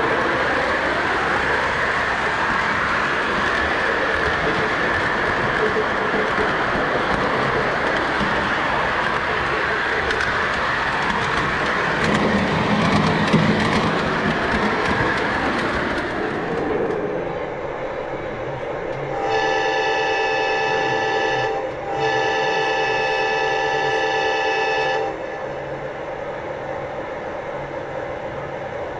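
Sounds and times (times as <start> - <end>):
model train rolling rumble: 0.0 - 17.7
locomotive horn blast: 19.1 - 25.4.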